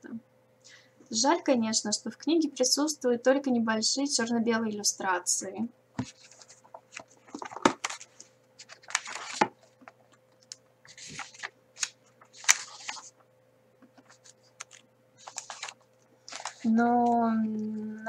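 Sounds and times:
book pages turning and riffling: 6.0 - 16.7.

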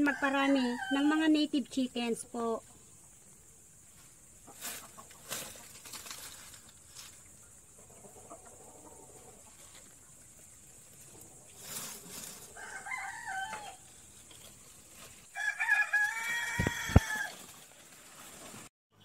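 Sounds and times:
rooster crowing: 0.0 - 1.2, 12.5 - 13.9, 15.3 - 17.4.

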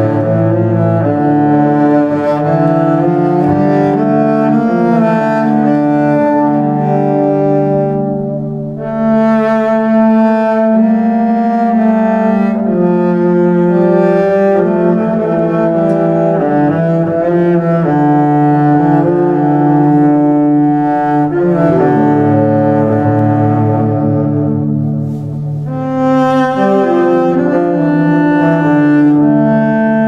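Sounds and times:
held low string notes: 0.0 - 30.0
slow instrumental music: 0.0 - 30.0.

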